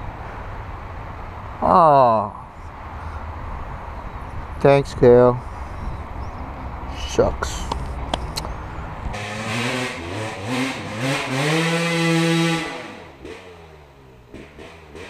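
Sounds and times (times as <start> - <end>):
dirt bike engine revving: 9.1 - 15.0.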